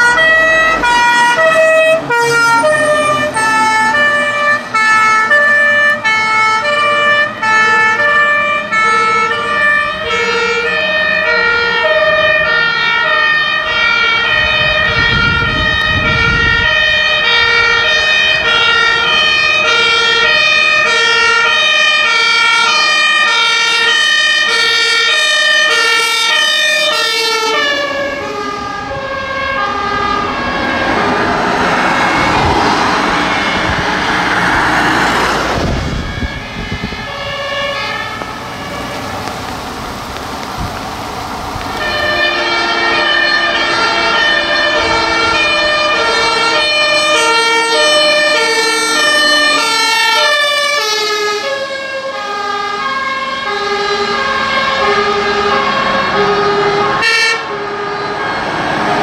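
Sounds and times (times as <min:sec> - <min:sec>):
two-tone emergency sirens: 0:00.0 - 0:59.0
vehicle engine rumbling past: 0:00.1 - 0:21.0, 0:26.5 - 0:57.0.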